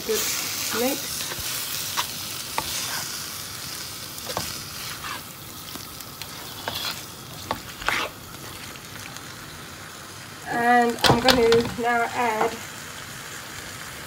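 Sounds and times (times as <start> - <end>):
food sizzling in a frying pan: 0.0 - 14.0
spatula scraping and knocking pan: 0.8 - 3.1, 4.2 - 5.3, 6.2 - 8.7.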